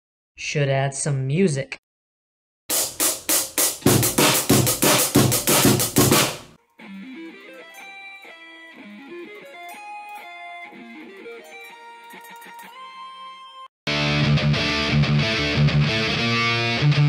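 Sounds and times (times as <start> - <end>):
drum fill snare and cymbals: 2.7 - 6.6
clean electric guitar melody: 6.6 - 17.0.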